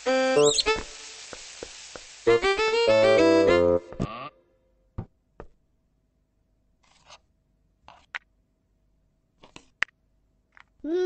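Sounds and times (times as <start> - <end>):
short hissy bursts: 0.0 - 3.4
high squeaks: 0.4 - 0.8.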